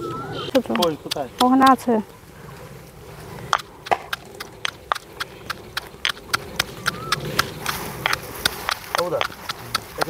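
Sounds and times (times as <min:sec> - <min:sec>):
sharp clicks: 0:00.5 - 0:01.9, 0:03.5 - 0:10.0.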